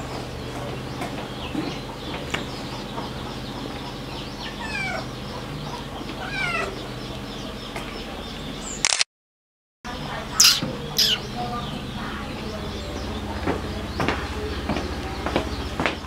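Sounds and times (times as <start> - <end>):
cat meowing: 10.4 - 11.2.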